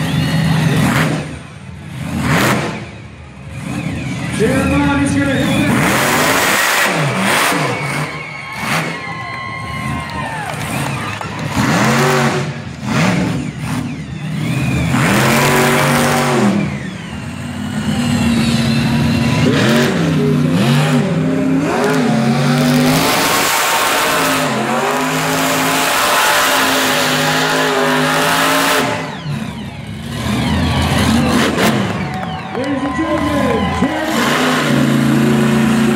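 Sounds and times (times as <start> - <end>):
truck engine revving: 0.0 - 35.9.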